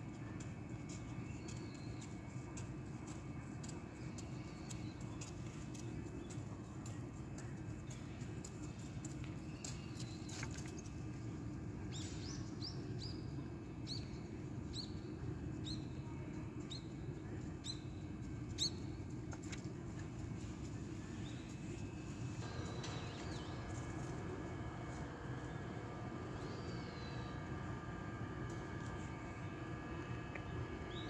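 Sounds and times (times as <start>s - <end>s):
steady low rumble: 16.4s - 31.0s.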